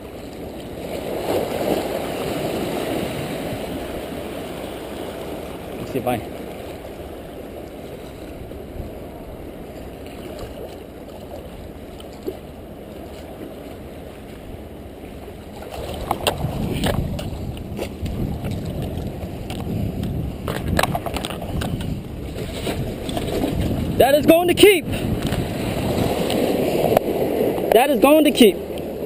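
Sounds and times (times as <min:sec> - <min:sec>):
water splashing: 0:00.0 - 0:29.0
waves washing against rocks: 0:00.0 - 0:29.0
wind on microphone: 0:15.5 - 0:29.0.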